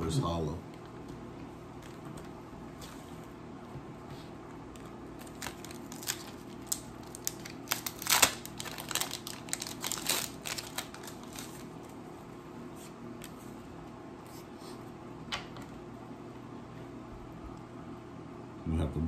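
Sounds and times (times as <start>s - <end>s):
steady low hum: 0.0s - 19.0s
foil wrapper tearing and crinkling: 4.8s - 11.9s.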